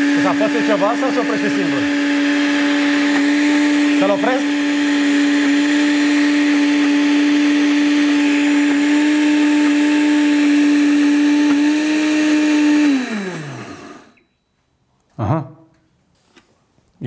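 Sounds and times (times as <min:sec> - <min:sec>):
blender motor running: 0:00.0 - 0:14.2.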